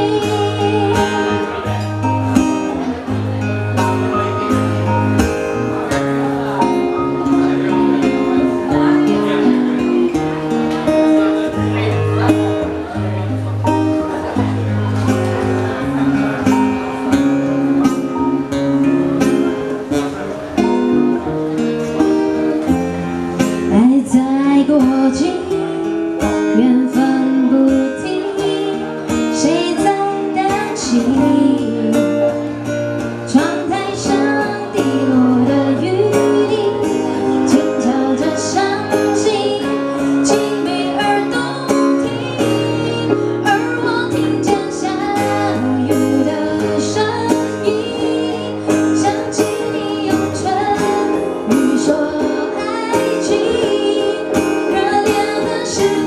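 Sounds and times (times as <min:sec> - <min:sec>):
woman singing pop ballad: 0:00.0 - 0:03.1, 0:23.5 - 0:56.0
strummed acoustic guitar: 0:00.0 - 0:56.0.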